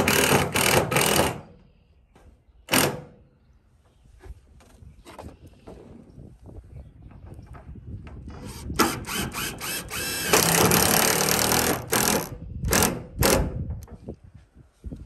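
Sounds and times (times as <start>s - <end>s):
drill driving a screw into wood: 0.0s - 1.5s, 8.4s - 13.6s.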